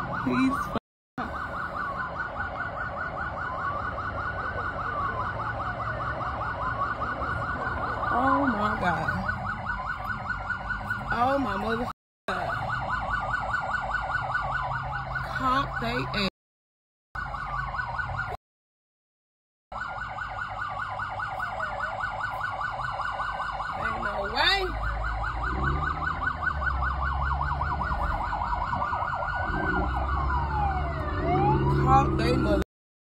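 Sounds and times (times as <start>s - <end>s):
police siren wail: 0.0s - 16.3s, 17.2s - 18.4s, 19.7s - 32.7s
police siren yelp: 0.0s - 16.3s, 17.2s - 18.4s, 19.7s - 32.7s
car engine hum: 22.8s - 32.6s.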